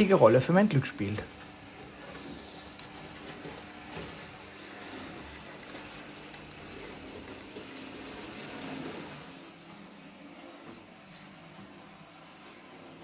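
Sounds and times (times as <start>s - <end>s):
model locomotive running on track: 2.1s - 9.6s.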